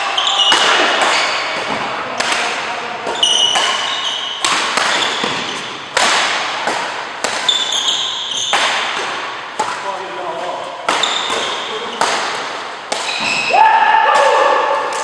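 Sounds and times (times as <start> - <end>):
shoes squeaking on court: 0.0 - 1.8, 3.0 - 6.0, 7.3 - 12.2, 13.0 - 13.5
rackets hitting shuttlecock: 0.1 - 15.0.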